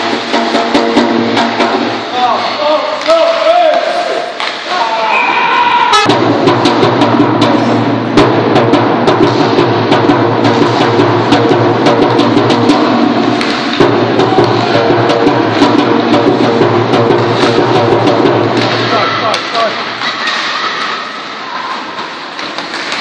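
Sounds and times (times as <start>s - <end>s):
hockey sticks and puck clacking: 0.0s - 5.0s, 12.7s - 14.8s, 17.1s - 23.0s.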